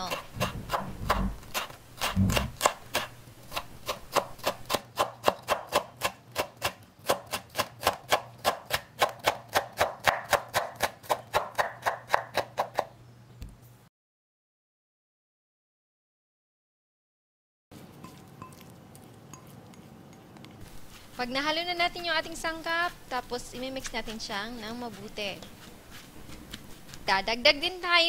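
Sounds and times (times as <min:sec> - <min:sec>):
knife chopping on wooden board: 0:00.0 - 0:12.9.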